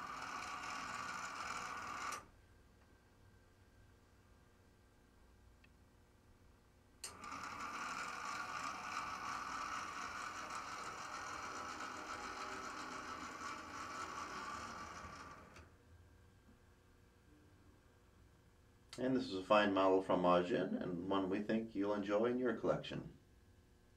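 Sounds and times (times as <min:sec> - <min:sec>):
model train motor whirring: 0:00.0 - 0:02.3, 0:07.1 - 0:15.7.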